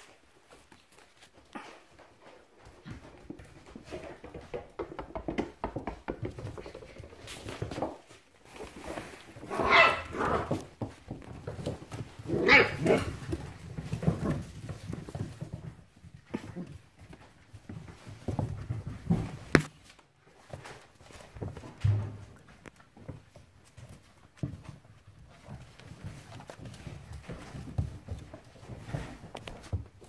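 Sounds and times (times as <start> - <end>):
puppies scuffling: 0.0 - 30.0
dog barking: 9.5 - 10.5, 12.4 - 13.0.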